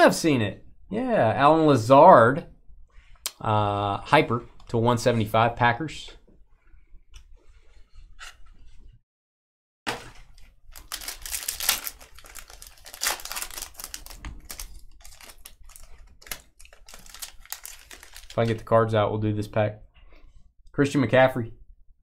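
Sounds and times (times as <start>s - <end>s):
wrapper crinkling and tearing: 10.3s - 18.7s.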